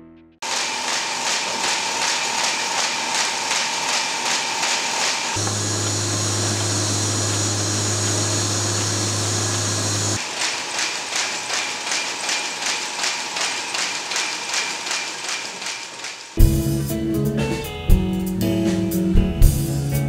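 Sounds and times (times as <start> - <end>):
printing press clattering: 0.4 - 16.4
low hum and whir: 5.2 - 10.2.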